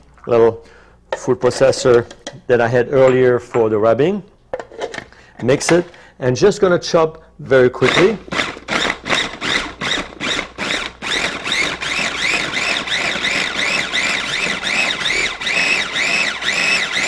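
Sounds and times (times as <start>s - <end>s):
food processor motor pulsing: 7.8s - 17.0s.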